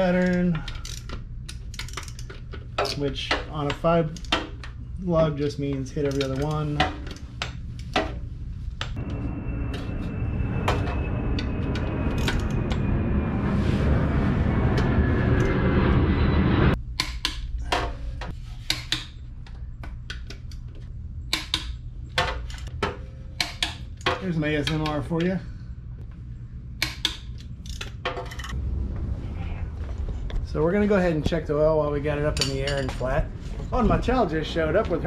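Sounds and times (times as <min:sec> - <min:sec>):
rushing noise with falling tone: 0:09.0 - 0:16.8, 0:28.6 - 0:31.8.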